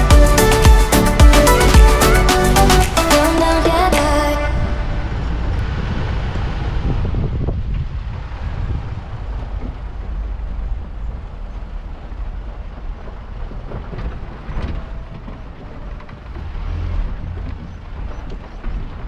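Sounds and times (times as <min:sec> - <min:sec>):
truck rumbling off-road: 0:00.0 - 0:19.0
knocks and rattles: 0:10.8 - 0:19.0.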